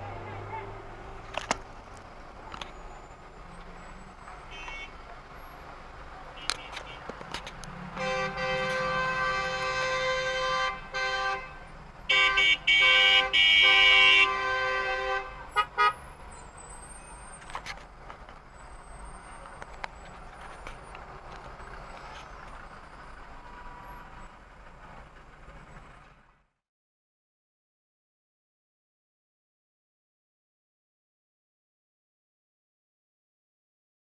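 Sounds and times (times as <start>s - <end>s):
idling traffic: 0.0s - 26.6s
car horns blaring: 4.3s - 5.0s, 6.4s - 7.2s, 7.9s - 16.2s
short horn toots: 8.0s - 11.5s.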